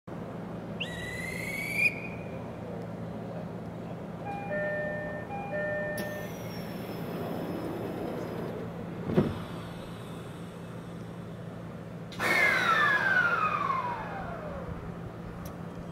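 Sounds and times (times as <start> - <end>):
electric train humming: 0.2 - 15.9
short rising whistle: 0.8 - 2.4, 12.2 - 14.6.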